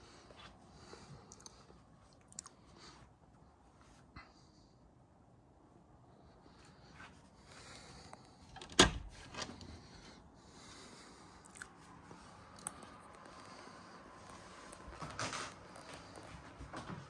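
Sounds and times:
door latch clunk: 8.6s - 9.6s.

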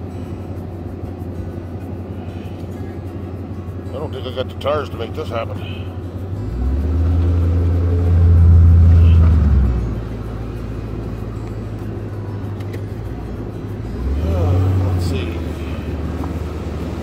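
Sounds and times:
car engine revving hard: 6.3s - 10.2s, 13.8s - 17.0s.

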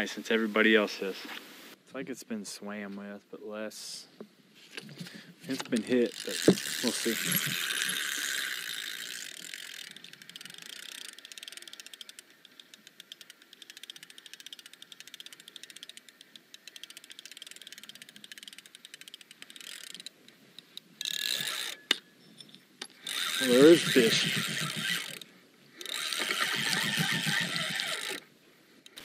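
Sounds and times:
fishing reel clicking: 5.5s - 22.0s, 23.0s - 29.0s.

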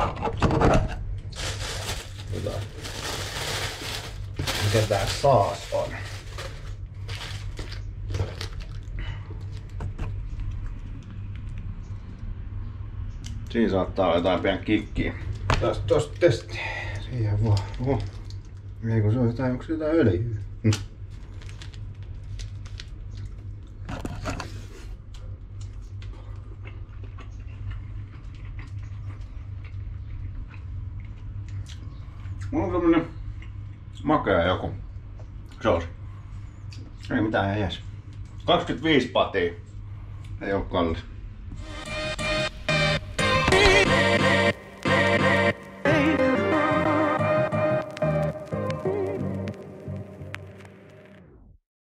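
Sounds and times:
steady low hum: 0.0s - 51.4s
plastic packaging crinkling: 1.2s - 9.8s, 21.1s - 24.3s, 47.8s - 51.1s
person chewing food: 7.0s - 12.2s, 25.0s - 32.5s.

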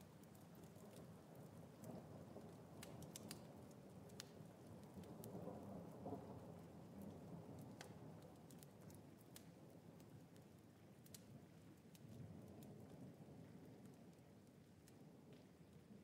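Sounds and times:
light ticks: 1.8s - 3.5s, 4.1s - 5.4s, 7.0s - 13.0s.

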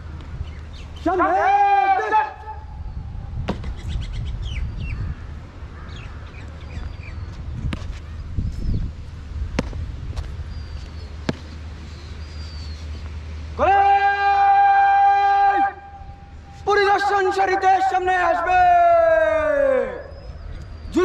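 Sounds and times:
small birds chirping: 0.3s - 1.2s, 2.8s - 9.0s, 10.2s - 13.2s, 20.0s - 21.0s
steady low rumble: 2.4s - 13.6s, 15.8s - 17.5s.

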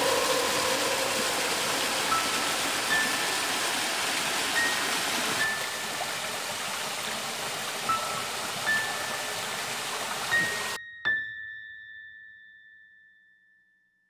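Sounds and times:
waterfall and stream rushing: 0.0s - 10.8s.

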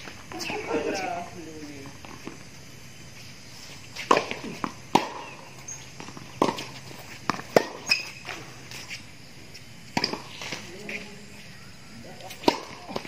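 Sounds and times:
tennis balls struck by rackets: 3.9s - 11.1s, 12.1s - 13.0s
balls bouncing on hard court: 4.0s - 8.9s, 10.0s - 11.0s, 12.3s - 13.0s.

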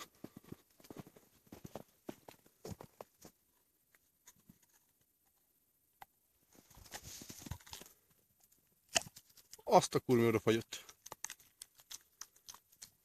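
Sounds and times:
dog gnawing crunching clicks: 8.9s - 9.6s, 10.8s - 13.0s.

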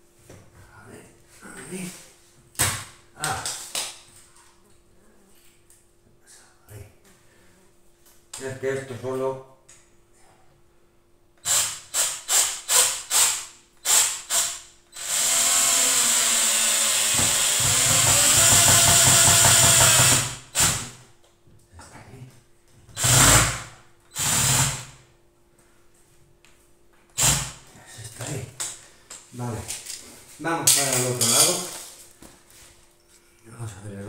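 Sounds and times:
cordless drill driving a screw: 11.4s - 20.8s, 23.0s - 24.9s, 27.2s - 27.5s.

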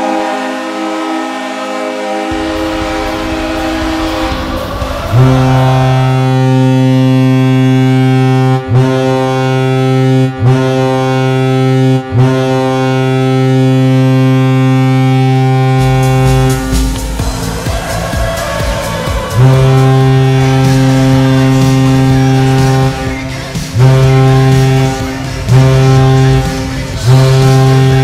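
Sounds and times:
crowd noise wash: 0.0s - 8.8s, 15.7s - 28.0s
arena goal horn: 0.0s - 28.0s
deep goal horn blasts: 0.0s - 28.0s.

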